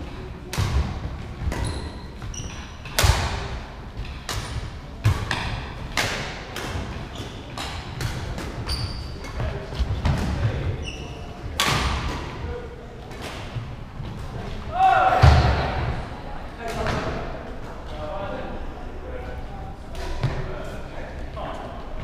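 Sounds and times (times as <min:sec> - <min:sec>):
shoes squeaking on wooden court: 0:01.4 - 0:03.0, 0:06.8 - 0:11.6.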